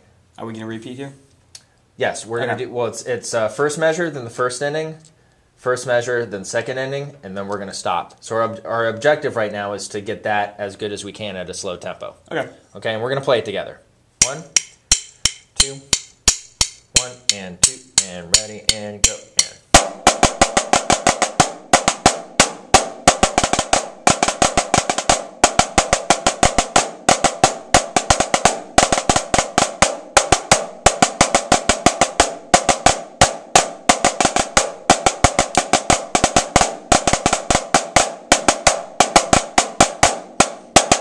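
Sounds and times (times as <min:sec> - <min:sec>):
snare drums playing: 0:14.2 - 0:41.0.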